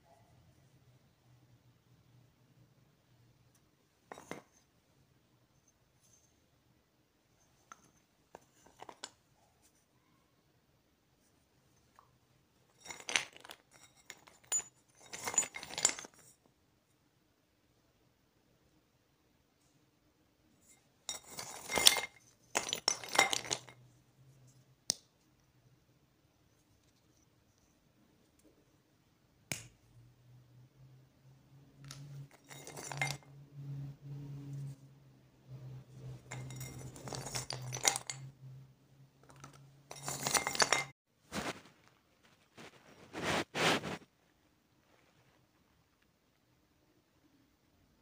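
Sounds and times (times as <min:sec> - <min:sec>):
clay pieces clinking and scraping: 0:04.0 - 0:04.8, 0:07.4 - 0:09.8, 0:12.7 - 0:16.4, 0:20.6 - 0:24.0, 0:31.8 - 0:33.2, 0:35.9 - 0:38.3, 0:39.2 - 0:41.6.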